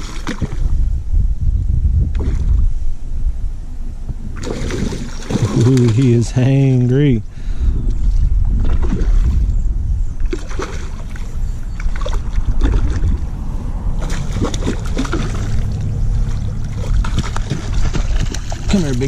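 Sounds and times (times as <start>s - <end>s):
fish splashing and thrashing in water: 0.0s - 0.8s, 4.3s - 6.4s, 7.9s - 9.6s, 10.2s - 19.0s
heavy low rumble: 0.0s - 19.0s.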